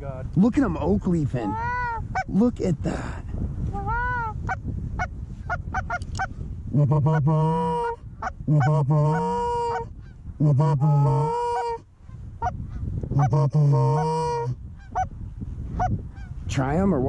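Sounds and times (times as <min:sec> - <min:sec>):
goose call clucks: 0:03.8 - 0:06.3, 0:07.1 - 0:09.9, 0:10.6 - 0:11.8, 0:12.4 - 0:15.1.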